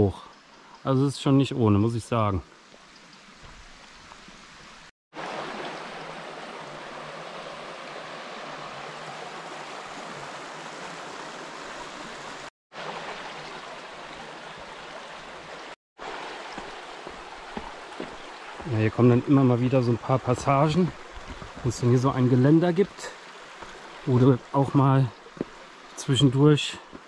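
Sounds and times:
creek rushing: 2.5 - 27.0.

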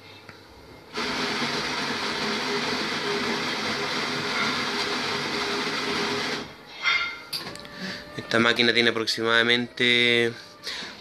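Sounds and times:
coffee machine motor whir: 1.0 - 6.5.

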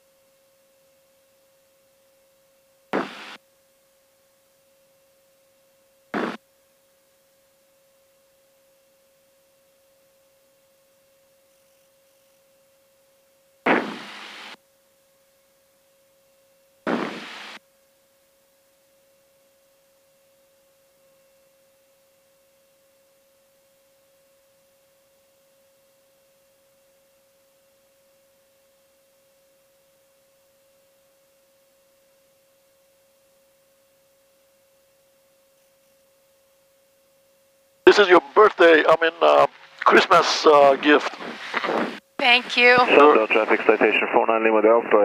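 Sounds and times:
faint steady thin tone: 0.0 - 13.6, 17.5 - 41.0
burst of static: 3.0 - 3.4, 6.2 - 6.4, 13.7 - 14.6, 16.9 - 17.6, 37.9 - 45.0.

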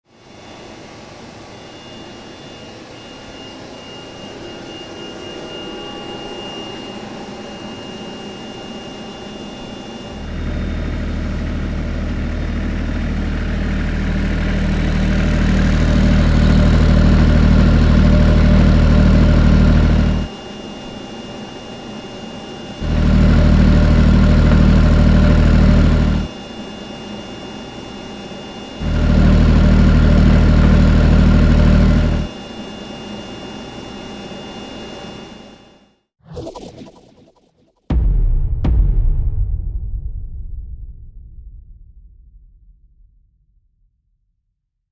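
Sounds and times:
turbine generator hum and whine: 0.1 - 37.4
diesel generator rumble: 10.2 - 20.3, 22.8 - 26.3, 28.8 - 32.3.

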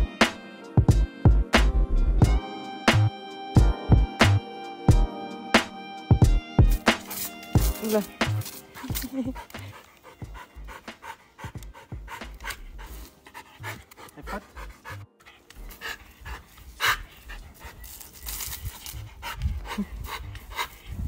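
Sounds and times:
dog panting: 7.0 - 21.0.

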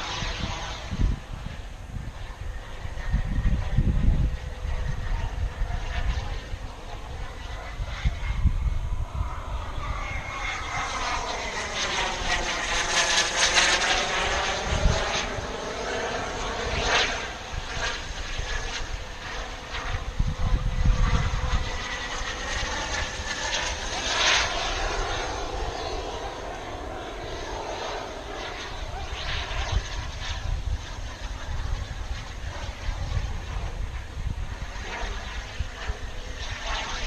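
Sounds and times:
jet turbine whine: 0.0 - 37.0
wind rumbling on microphone: 0.0 - 37.0.

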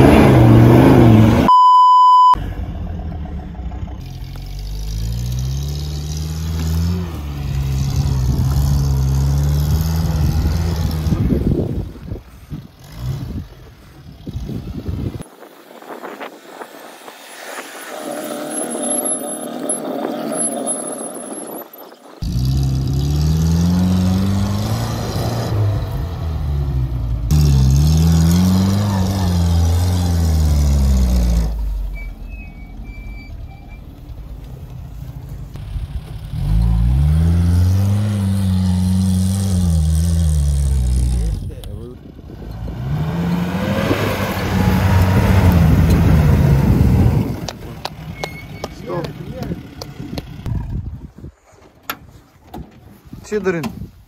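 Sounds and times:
off-road vehicle engine revving: 0.0 - 1.5, 2.4 - 15.2, 22.2 - 33.8, 35.5 - 50.8.

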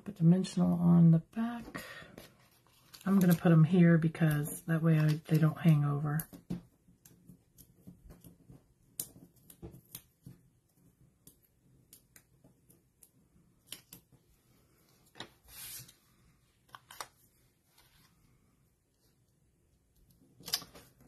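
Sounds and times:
paper rustle: 2.1 - 4.3, 4.9 - 5.7, 15.1 - 16.0.

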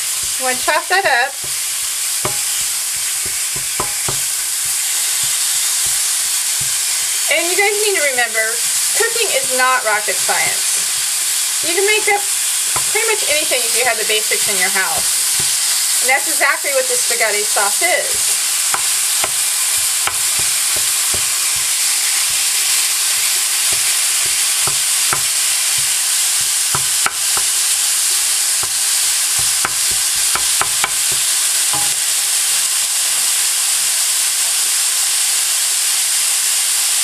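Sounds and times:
wooden spatula scraping a pan: 0.0 - 7.7
meat sizzling in a skillet: 0.0 - 37.0.

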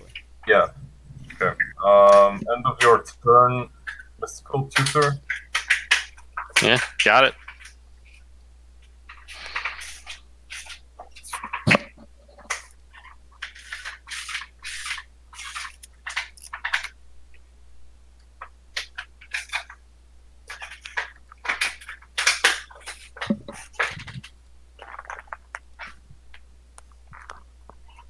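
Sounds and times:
cards being shuffled: 4.8 - 8.2, 9.1 - 11.8, 12.4 - 17.0, 18.4 - 19.8, 20.5 - 26.0.

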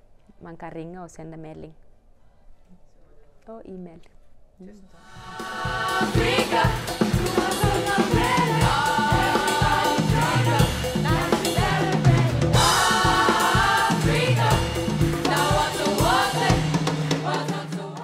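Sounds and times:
group singing over drums and bass: 5.1 - 18.0.

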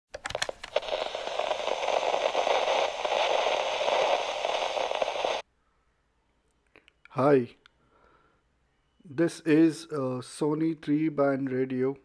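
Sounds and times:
sharp clicks: 0.1 - 5.4
radio static crackling hiss: 0.5 - 5.4.

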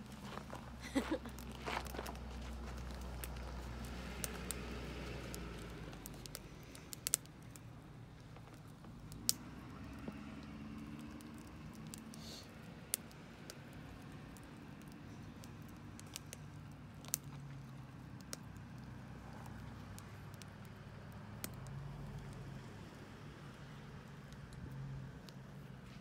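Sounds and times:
small fire crackling: 0.0 - 26.0
sharp pops and clicks: 1.3 - 12.2, 12.9 - 22.4.

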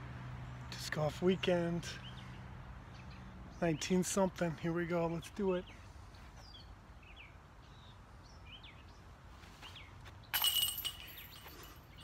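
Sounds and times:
birds chirping: 0.4 - 12.0
disc striking metal chains: 10.3 - 12.0.

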